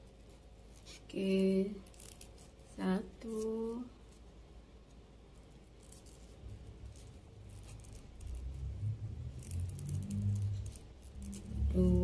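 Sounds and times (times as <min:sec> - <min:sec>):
cord rustling through crochet hook: 0:00.0 - 0:12.0
low rumble: 0:06.4 - 0:12.0.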